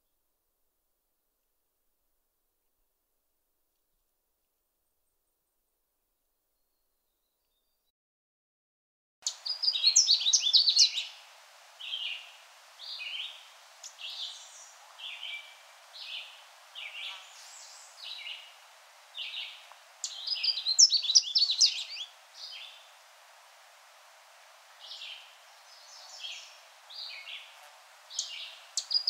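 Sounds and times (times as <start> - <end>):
warbler song burst: 9.2 - 11.2, 11.8 - 23.0, 24.8 - 29.0.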